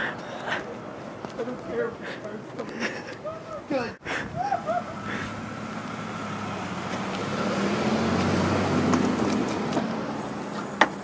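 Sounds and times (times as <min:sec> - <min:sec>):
car driving past: 0:04.7 - 0:11.0.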